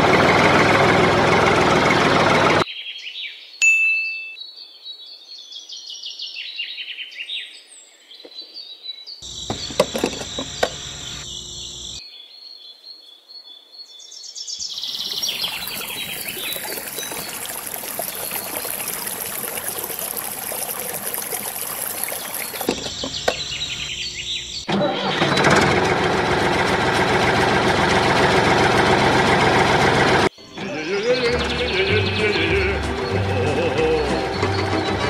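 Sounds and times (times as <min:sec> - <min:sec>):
birds chirping: 0:09.2 - 0:12.0, 0:14.2 - 0:24.7
insects buzzing: 0:09.2 - 0:12.0, 0:14.8 - 0:24.6.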